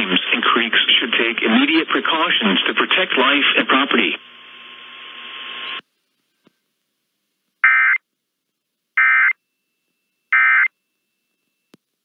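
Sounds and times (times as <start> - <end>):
radio hiss: 0.0 - 5.8.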